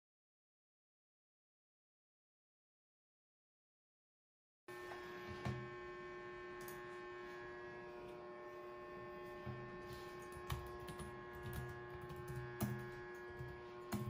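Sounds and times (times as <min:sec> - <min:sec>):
faint electrical hum: 0:04.7 - 0:14.0.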